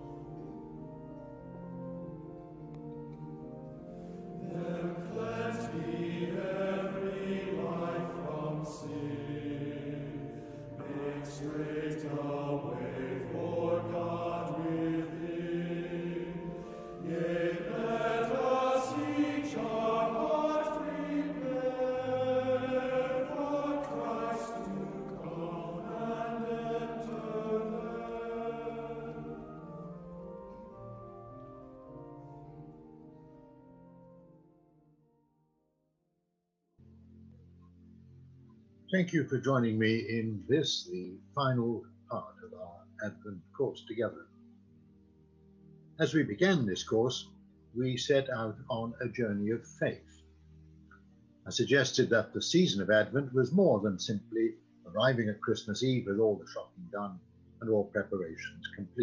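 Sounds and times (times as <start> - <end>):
choir singing slow piece: 0.0 - 33.3.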